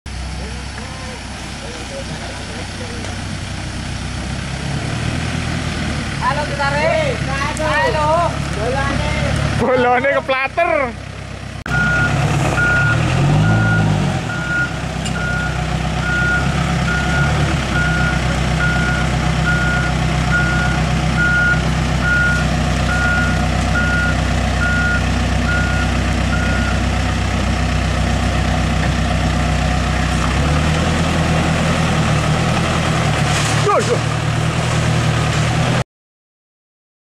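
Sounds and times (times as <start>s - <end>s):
diesel engine running: 0.1s - 35.8s
reversing alarm beeping: 11.7s - 26.9s.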